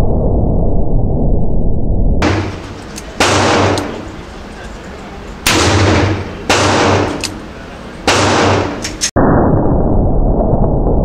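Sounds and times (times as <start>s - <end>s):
revolver gunshots with echo: 2.2s - 4.4s, 5.4s - 9.1s.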